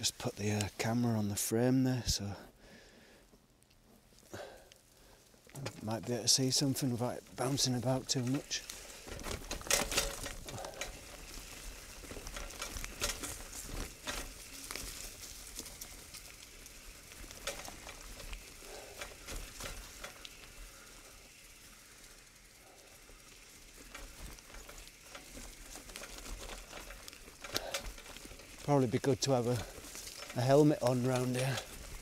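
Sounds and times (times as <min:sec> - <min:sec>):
bike tyres on dirt trail: 0:00.0 - 0:32.0
bike frame clicking and knocking: 0:09.0 - 0:15.1, 0:23.7 - 0:28.7.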